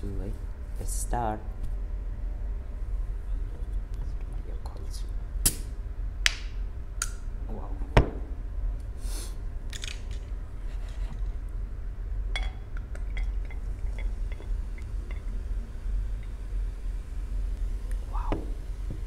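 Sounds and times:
glass clinking on mug: 12.4 - 14.5.

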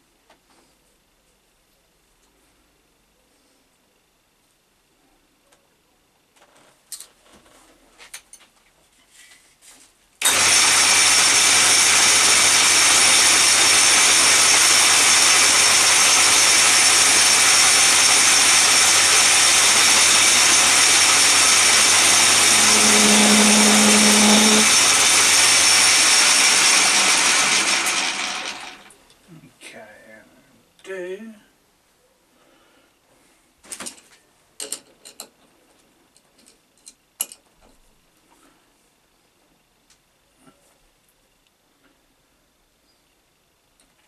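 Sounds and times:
power tool running: 10.2 - 28.9.

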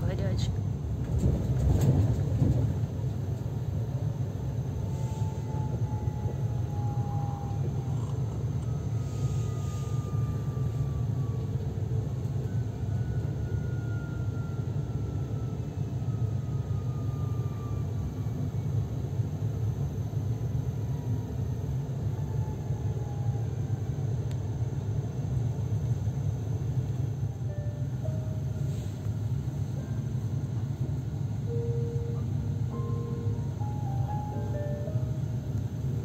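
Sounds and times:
train carriage rumble: 0.0 - 36.0
faint whine sliding down: 4.7 - 17.9.

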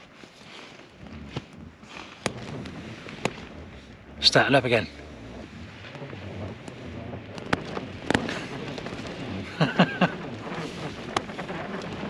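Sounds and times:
tent fabric snapping: 0.0 - 4.2, 5.0 - 9.5
wind buffeting a tent: 0.0 - 12.0.

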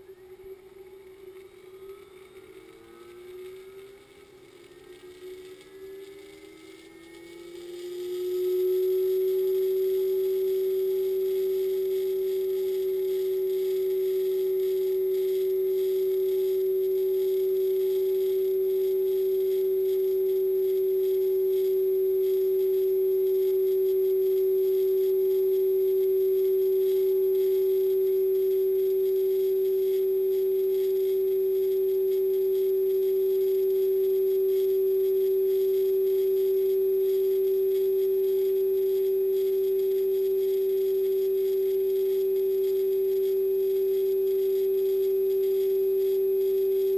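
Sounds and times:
steady hum: 0.0 - 5.8, 7.6 - 46.9
thin high whine: 0.0 - 46.9
faint low tone: 8.3 - 46.9.

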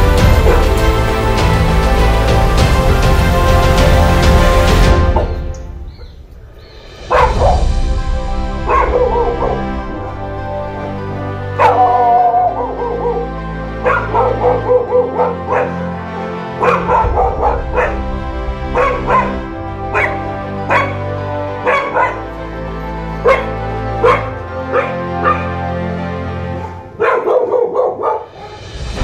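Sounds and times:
background music with bass line: 0.0 - 26.8
dog barking and yipping: 0.3 - 0.8, 7.1 - 7.6, 8.6 - 10.0, 11.5 - 22.5, 23.1 - 25.7, 26.6 - 28.7.

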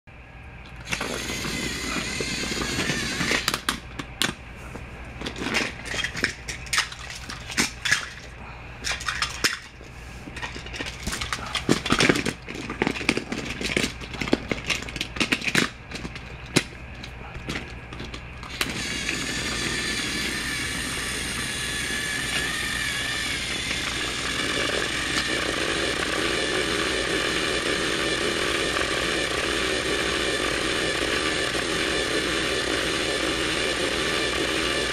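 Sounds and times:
toy train motor whining: 0.8 - 3.7, 18.4 - 34.9.

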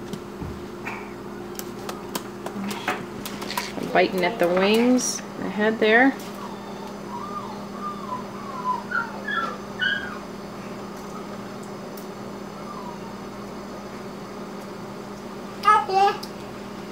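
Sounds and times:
puppy whimpering: 6.2 - 10.3, 12.5 - 13.5.

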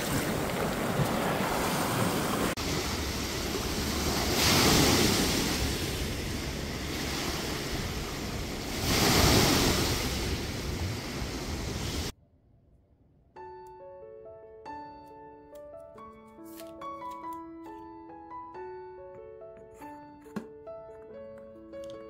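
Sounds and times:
small waves washing onto shore: 0.0 - 12.1.

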